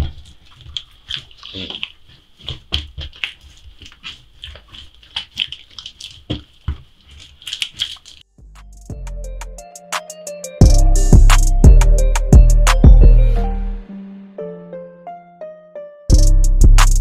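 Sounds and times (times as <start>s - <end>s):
hands kneading dough: 0.0s - 8.3s.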